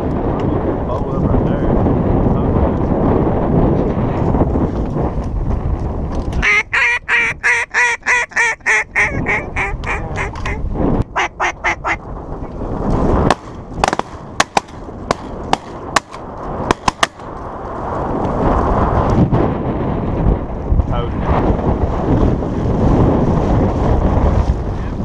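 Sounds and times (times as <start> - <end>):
wind buffeting microphone: 0.0 - 25.0
duck call quacks: 6.4 - 10.6, 11.2 - 12.0
sharp cracks: 12.9 - 17.5.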